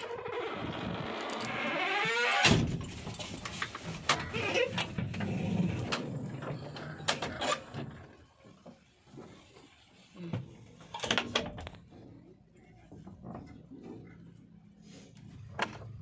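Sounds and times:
metal door squeaking: 0.0 - 3.0
metal door banging shut: 1.4 - 3.0.

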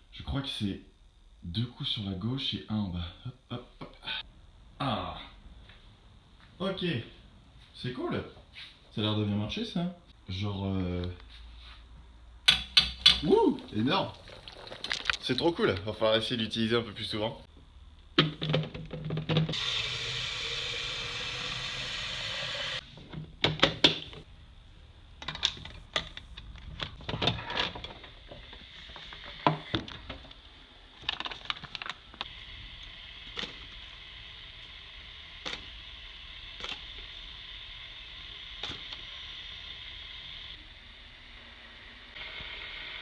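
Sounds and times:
faint steady hiss: 0.0 - 18.2.

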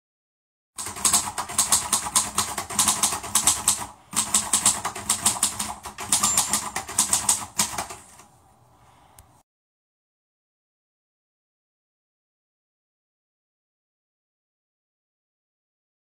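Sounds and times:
rapid clattering clicks: 0.8 - 8.3.

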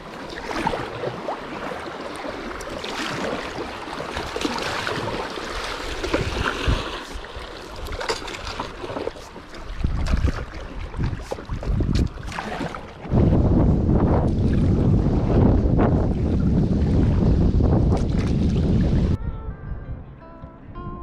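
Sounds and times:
paddle strokes splashing: 0.0 - 13.1
water sloshing: 0.0 - 13.2
wind buffeting microphone: 4.2 - 21.0.

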